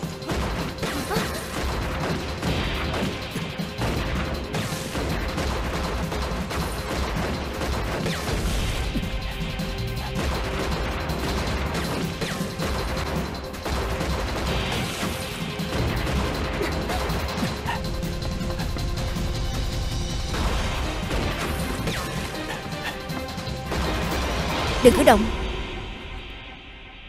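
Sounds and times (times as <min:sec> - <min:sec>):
pistol shots and impacts: 0:00.0 - 0:09.3
background music: 0:00.0 - 0:27.0.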